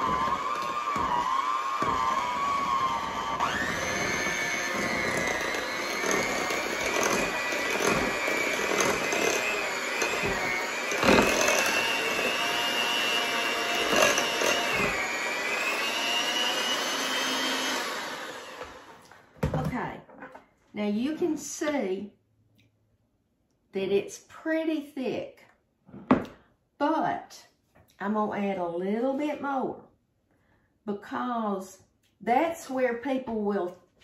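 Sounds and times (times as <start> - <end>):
electric hand mixer whine: 0.0 - 19.0.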